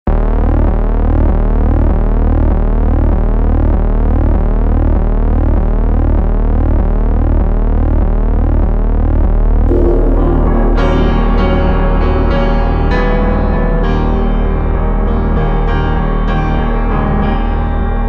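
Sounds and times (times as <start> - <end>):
low electronic hum: 0.1 - 18.0
rising pitch sweeps: 9.7 - 16.4.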